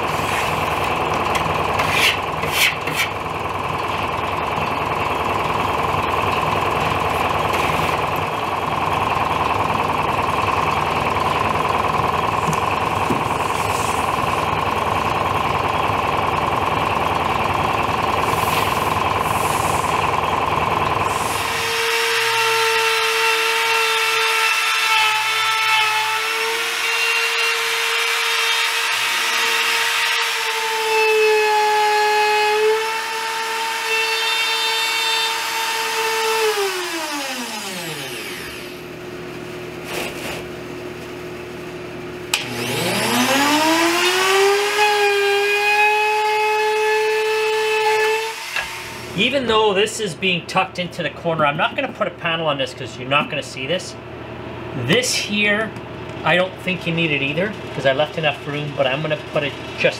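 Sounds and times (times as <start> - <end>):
trim router whining: 0.0 - 39.0, 42.3 - 49.7
noisy machine: 0.0 - 59.9.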